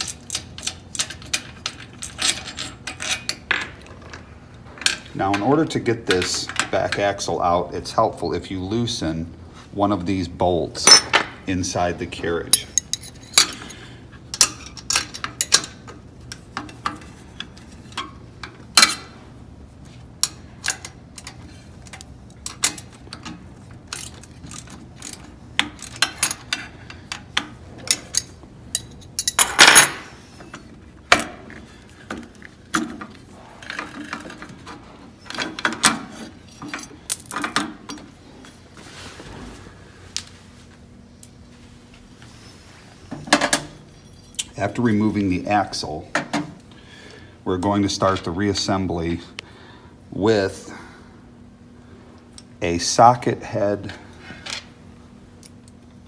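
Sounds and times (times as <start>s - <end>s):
wrenches clinking on metal: 0.0s - 4.2s, 10.8s - 11.3s, 12.4s - 19.2s, 20.2s - 38.1s.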